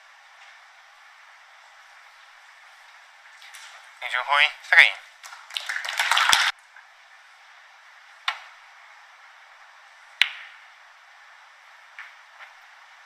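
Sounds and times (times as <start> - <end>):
loud crackly noise: 5.2 - 6.6
snooker balls clicking: 10.2 - 10.6.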